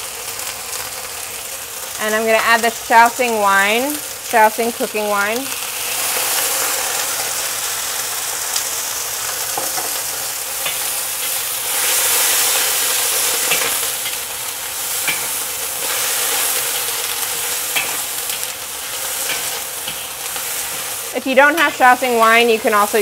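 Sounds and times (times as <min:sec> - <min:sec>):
vegetables sizzling in a wok: 0:00.0 - 0:23.0
spatula scraping a wok: 0:09.5 - 0:22.0.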